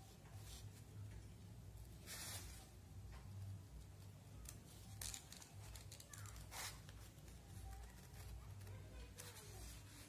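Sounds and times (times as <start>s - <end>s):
paper rustle: 4.4s - 10.0s.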